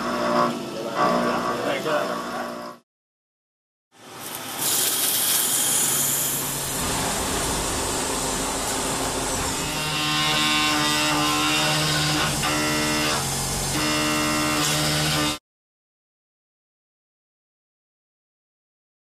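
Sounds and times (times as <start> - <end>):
milling machine cutting: 0.0 - 2.8, 4.1 - 15.4
coolant spray hiss: 4.1 - 9.5.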